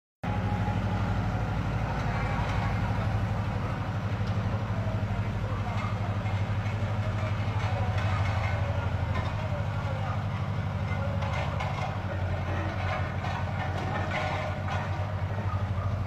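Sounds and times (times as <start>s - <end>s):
road-works machinery droning: 0.2s - 16.0s.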